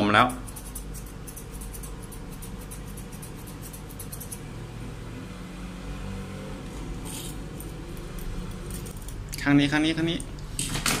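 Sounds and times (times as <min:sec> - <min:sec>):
steady low hum: 0:00.0 - 0:10.6
scissors snipping fur: 0:00.3 - 0:04.4, 0:07.0 - 0:09.5.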